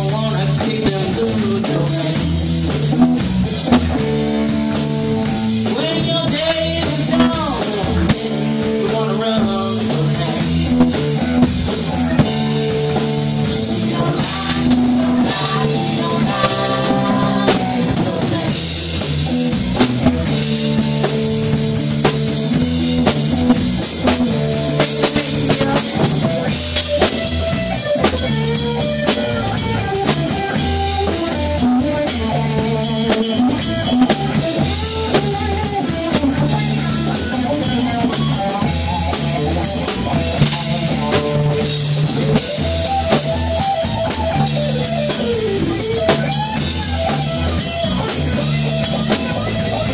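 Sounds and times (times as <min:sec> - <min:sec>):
live rock band playing: 0:00.0 - 0:49.9
melodic lead line: 0:00.0 - 0:49.9.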